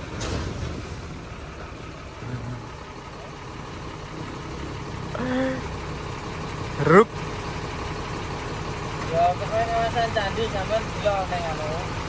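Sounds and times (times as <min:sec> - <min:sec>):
diesel truck engine idling: 0:00.0 - 0:12.0
man calling: 0:06.7 - 0:07.1.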